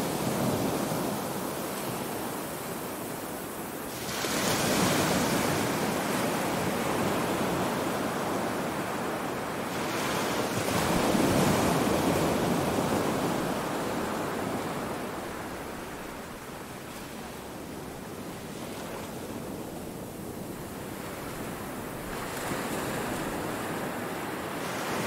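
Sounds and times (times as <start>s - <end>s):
waves breaking on beach: 0.0s - 25.0s.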